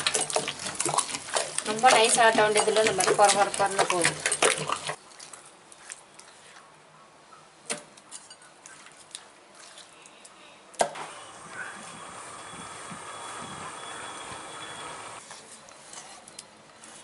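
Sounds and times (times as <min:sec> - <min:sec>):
wet paste squishing under stone: 0:00.0 - 0:06.6.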